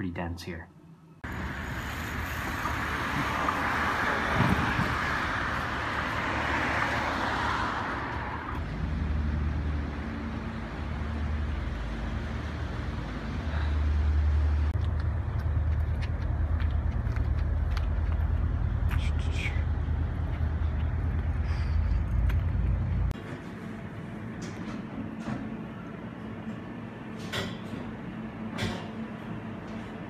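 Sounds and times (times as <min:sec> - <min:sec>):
low engine hum: 0:01.2 - 0:27.2
car passing by: 0:01.3 - 0:14.7.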